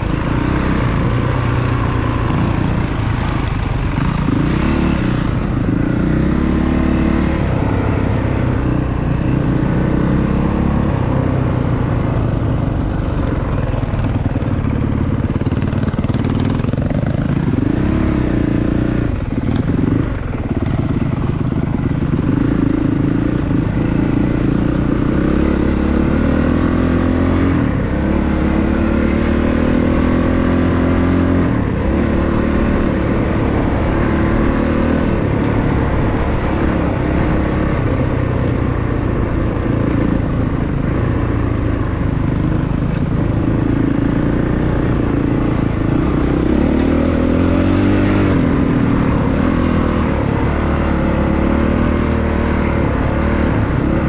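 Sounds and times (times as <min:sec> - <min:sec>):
dirt bike engine accelerating: 0:00.0 - 0:11.1, 0:12.0 - 0:54.0.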